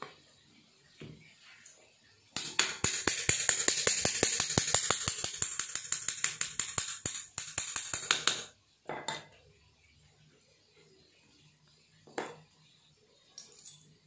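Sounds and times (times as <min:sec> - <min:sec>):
metallic tapping on bearing: 0:02.4 - 0:08.5.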